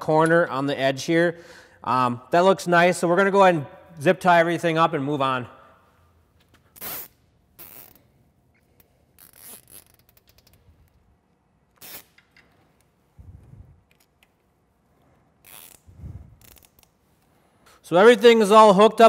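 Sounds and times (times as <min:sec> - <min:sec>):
zip ties zipping tight: 0:06.7 - 0:08.2, 0:09.1 - 0:10.6, 0:11.7 - 0:12.2, 0:15.4 - 0:16.9.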